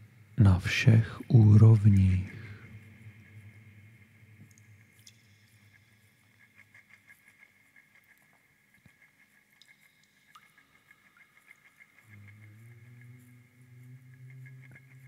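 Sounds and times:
faint high-pitched pulsing: 0.0 - 15.0
soft ticks: 4.4 - 12.4.

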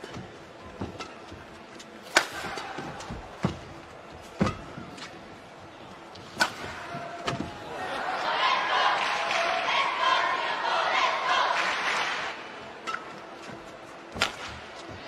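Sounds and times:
rackets striking shuttlecock: 2.0 - 3.6.

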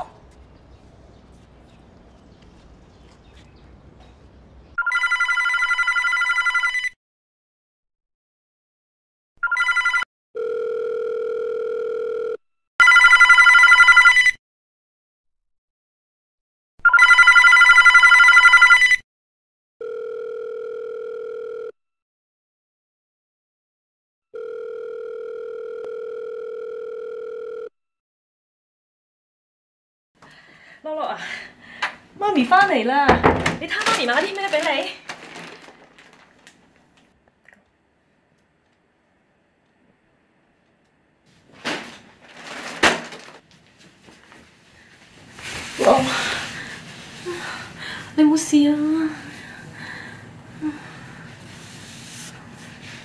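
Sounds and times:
telephone ringback tone: 4.8 - 7.0, 9.4 - 14.3, 16.9 - 19.0, 19.8 - 21.8, 24.4 - 27.7.

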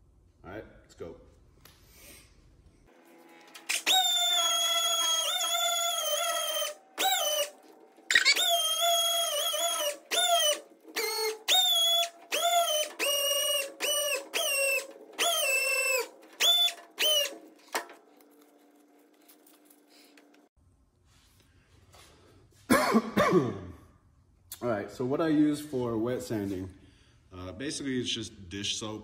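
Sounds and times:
pneumatic sander whining: 2.9 - 18.5.

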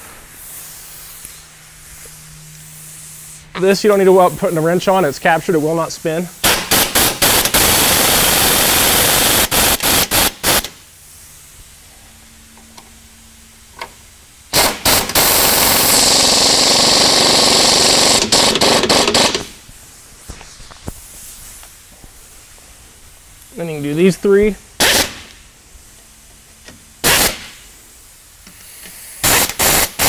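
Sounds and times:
exhaust air hiss: 0.0 - 12.6, 13.3 - 26.1, 27.0 - 30.0
pneumatic tool rattling: 6.4 - 10.8, 14.5 - 19.6, 24.8 - 25.3, 27.0 - 27.6, 28.4 - 30.0.

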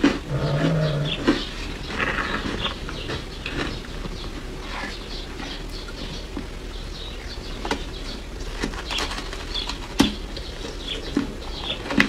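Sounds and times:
ice crunching while chewed: 0.0 - 6.5.

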